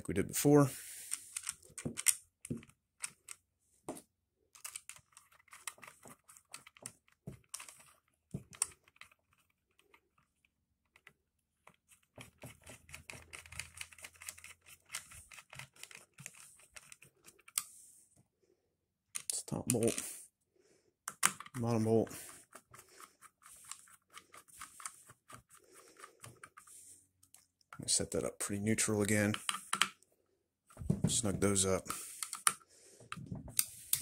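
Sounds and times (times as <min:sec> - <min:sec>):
bolts and screwdriver rattling: 0:01.1 - 0:03.4, 0:04.5 - 0:17.6, 0:21.1 - 0:28.0.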